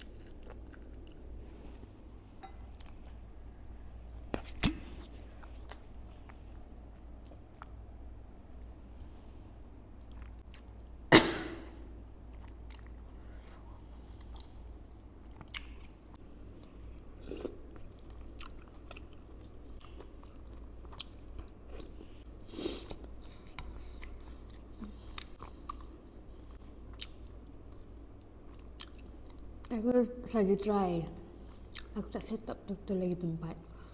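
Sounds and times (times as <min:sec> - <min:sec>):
chewing with crunches: 0:00.0 - 0:01.5, 0:12.2 - 0:29.8.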